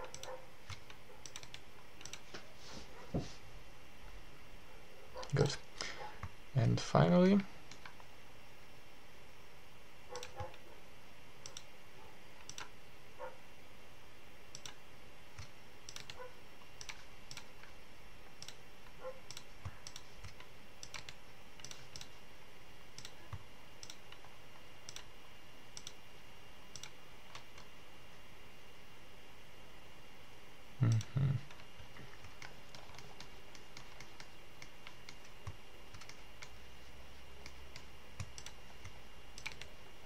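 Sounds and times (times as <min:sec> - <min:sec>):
computer mouse buttons clicking: 0:00.0 - 0:02.3, 0:07.7 - 0:08.1, 0:10.1 - 0:10.6, 0:11.4 - 0:11.7, 0:12.4 - 0:12.8, 0:14.5 - 0:14.8, 0:15.4 - 0:16.2, 0:16.8 - 0:17.7, 0:18.4 - 0:18.6, 0:19.3 - 0:22.2, 0:23.0 - 0:25.1, 0:25.8 - 0:26.0, 0:26.7 - 0:27.7, 0:30.9 - 0:36.6, 0:37.4 - 0:39.8.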